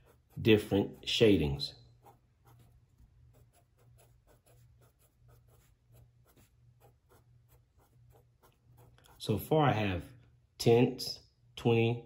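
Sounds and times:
pen scratching on paper: 0.0 - 9.4.

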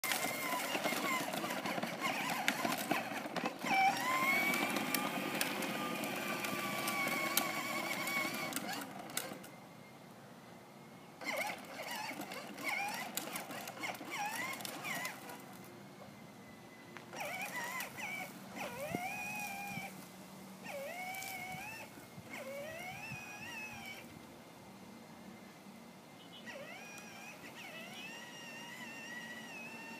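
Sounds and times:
plastic wheels rolling on concrete: 0.0 - 9.5, 11.2 - 15.6, 17.0 - 20.0
electric motor whine: 0.0 - 9.6, 11.2 - 15.8, 16.9 - 24.3, 26.4 - 29.9.

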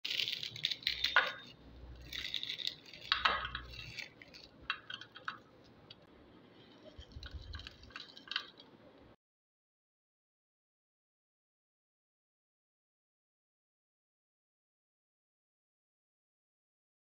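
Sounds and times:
rice crackers crunching: 0.0 - 5.5, 6.8 - 8.7
pieces dropping into glass bowl: 0.1 - 5.4.

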